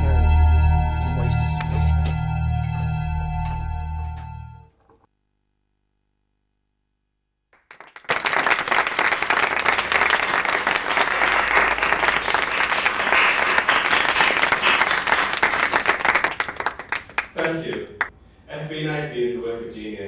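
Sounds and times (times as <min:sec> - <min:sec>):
audience applauding: 0:07.5 - 0:18.1.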